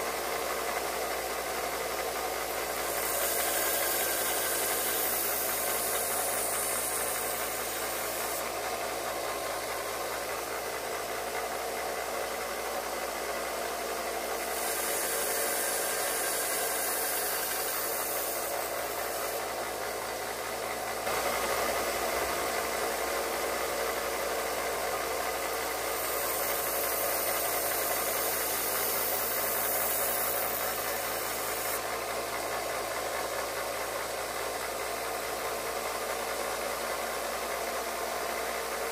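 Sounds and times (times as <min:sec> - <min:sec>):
electric grinder motor hum: 0:02.5 - 0:10.9, 0:13.7 - 0:20.2, 0:25.4 - 0:31.9
knife blade grinding hiss: 0:02.6 - 0:09.4, 0:14.2 - 0:19.8, 0:25.8 - 0:31.8.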